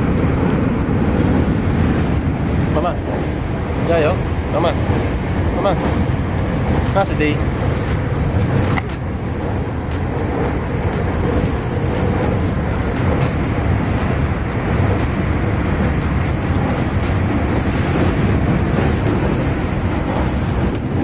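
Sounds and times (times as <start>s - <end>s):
train interior rumble and rush: 0.0s - 21.0s.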